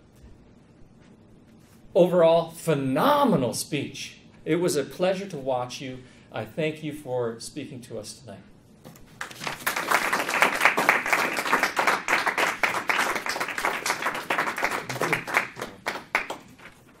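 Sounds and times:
audience applauding: 9.2s - 16.8s.

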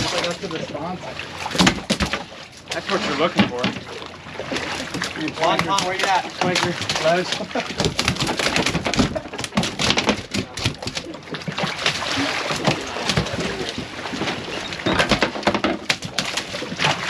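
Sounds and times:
water splashing against boat: 0.0s - 17.0s
knocks and clatters of gear: 4.8s - 12.0s, 12.6s - 17.0s.

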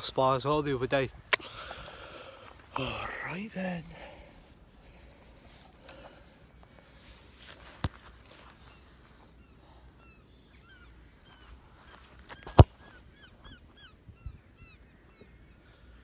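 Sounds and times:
birds calling: 0.0s - 16.0s
boot kicking football: 11.9s - 13.0s.

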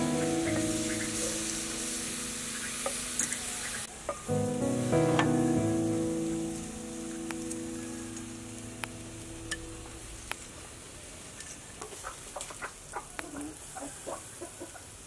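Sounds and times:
chickens clucking: 0.0s - 1.7s, 11.4s - 15.0s
background music: 0.0s - 3.4s, 4.3s - 10.4s.

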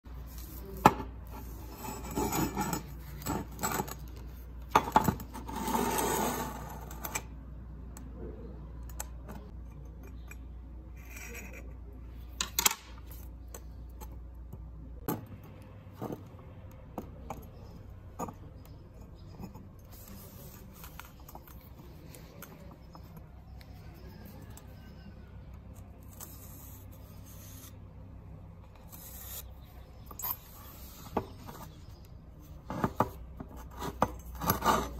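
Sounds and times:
low steady hum: 0.1s - 34.9s
gloves scraping steel pipe: 32.6s - 34.9s.

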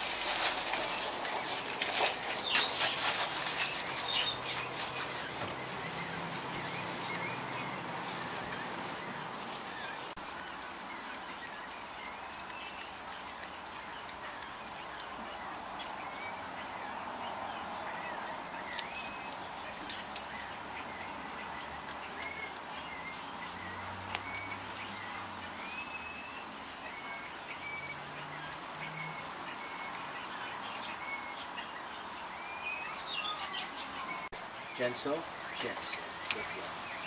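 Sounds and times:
kibble crunching in metal bowl: 0.0s - 5.3s.

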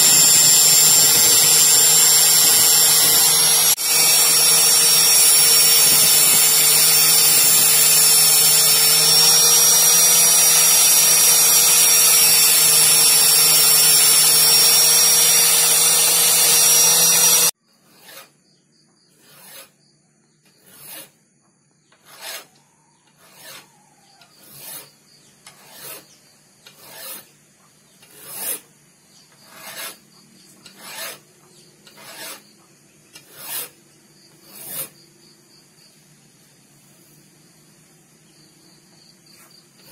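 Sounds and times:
angle grinder grinding steel: 0.0s - 18.2s, 23.2s - 23.7s, 24.3s - 26.1s, 26.7s - 27.3s, 28.0s - 28.6s, 29.4s - 30.0s, 30.7s - 31.2s, 31.8s - 32.5s, 33.2s - 33.8s, 34.4s - 35.0s
file rasping on steel: 0.0s - 18.4s, 19.1s - 19.8s, 20.5s - 21.2s, 21.9s - 27.3s, 28.0s - 28.7s, 29.3s - 32.5s, 33.2s - 33.8s, 34.4s - 35.0s.

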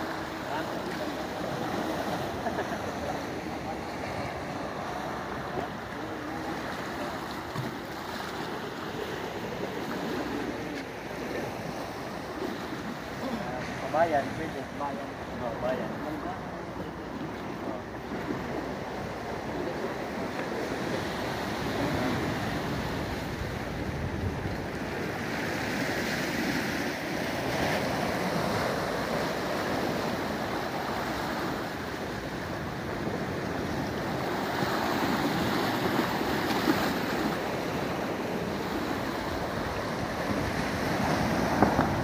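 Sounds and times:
sea washing against pier: 0.0s - 42.0s
waves lapping on rocks: 0.0s - 42.0s
wind on microphone: 20.8s - 25.7s, 32.1s - 42.0s
wind buffeting microphone: 21.6s - 25.2s.

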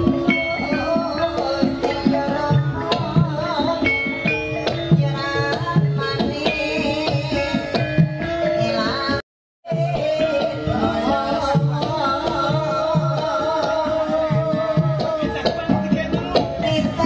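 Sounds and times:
metallophone and gong-chime notes: 0.1s - 1.4s.

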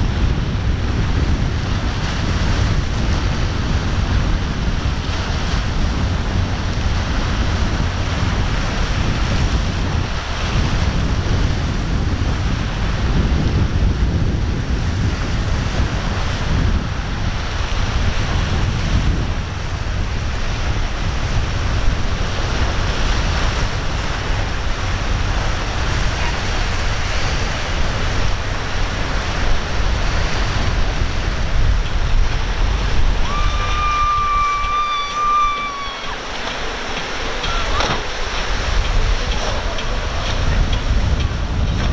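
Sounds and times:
breaking waves: 0.0s - 41.9s
wind buffeting microphone: 0.0s - 41.9s
shrill held tone: 33.2s - 36.2s.

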